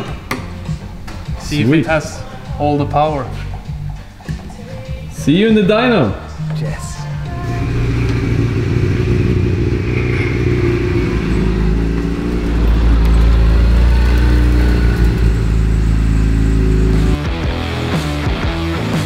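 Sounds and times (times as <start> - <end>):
rally car engine running: 7.4 - 19.0.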